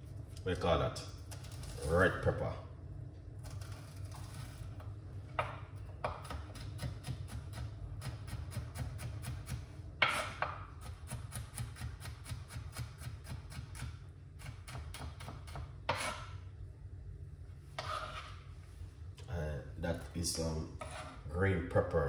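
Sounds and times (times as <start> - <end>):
knife chopping on cutting board: 5.4 - 16.3
knife scraping cutting board: 10.0 - 10.5, 13.2 - 16.4, 17.7 - 18.5, 20.8 - 21.3.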